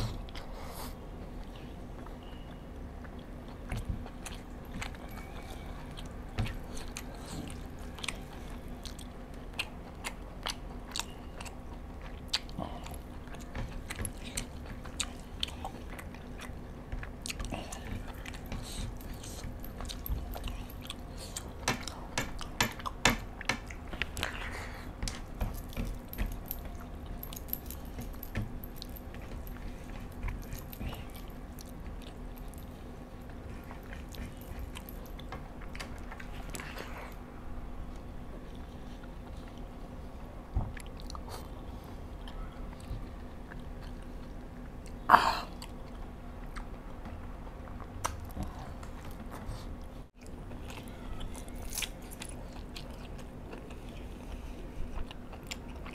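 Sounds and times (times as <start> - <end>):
steady low hum: 0.0 - 55.9
chewing crispy fried chicken: 0.1 - 25.3, 40.7 - 55.9.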